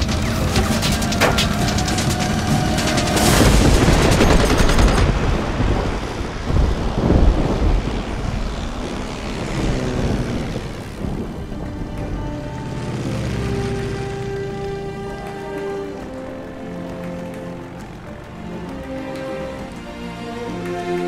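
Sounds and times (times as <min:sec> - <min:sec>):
machine-gun fire: 0:00.0 - 0:05.8
propeller plane engines droning: 0:00.0 - 0:21.0.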